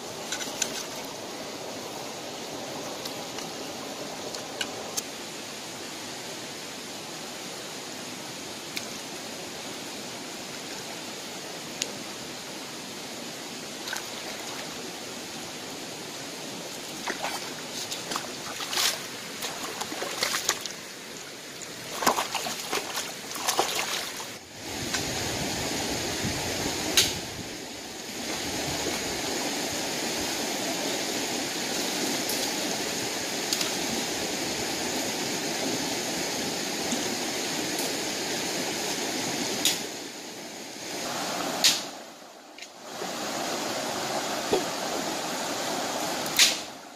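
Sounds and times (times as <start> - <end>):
water splashes: 0.0 - 5.0, 13.8 - 14.9, 16.6 - 25.5
stream running over stones: 0.0 - 46.9.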